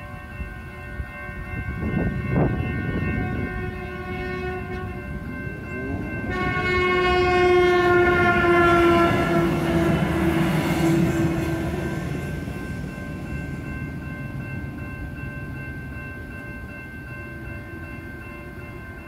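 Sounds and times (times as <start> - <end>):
railroad crossing bells: 0.0 - 19.0
train horn: 1.8 - 12.3.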